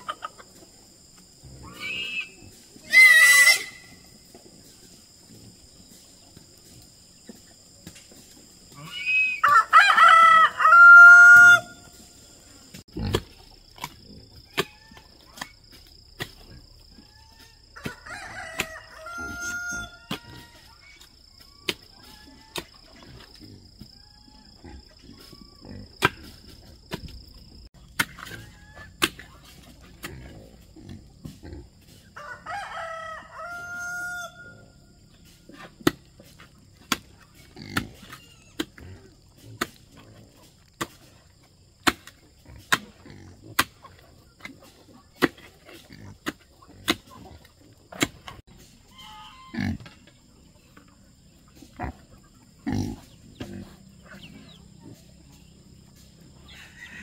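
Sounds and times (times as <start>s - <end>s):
rooster crowing: 9.4s - 11.8s, 17.8s - 20.6s, 32.2s - 34.9s, 56.5s - 57.0s.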